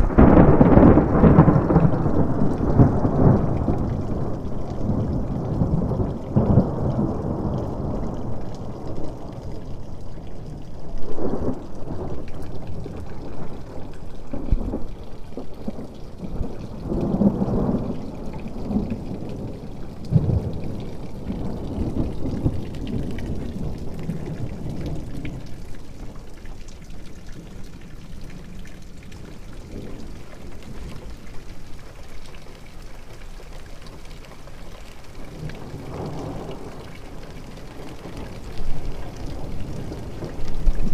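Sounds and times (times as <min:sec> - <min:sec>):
thunder rumbling: 0:00.0 - 0:26.4, 0:35.2 - 0:40.9
steady rain: 0:00.0 - 0:40.9.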